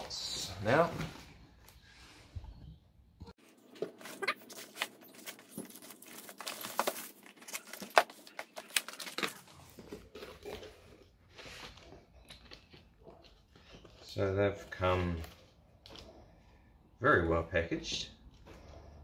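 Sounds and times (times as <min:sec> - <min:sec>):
plastic wrap crinkling and tearing: 0:03.5 - 0:16.1.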